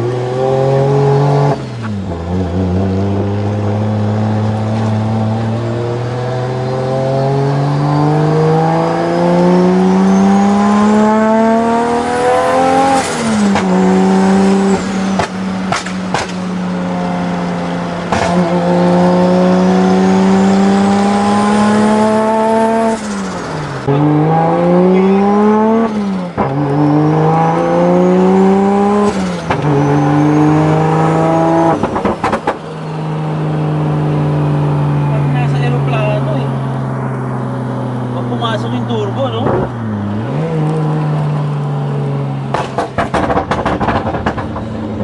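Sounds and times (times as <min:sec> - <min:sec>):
car engine accelerating: 0:00.0 - 0:45.0
high turbo whine: 0:00.0 - 0:45.0
exhaust cracks: 0:42.4 - 0:45.0.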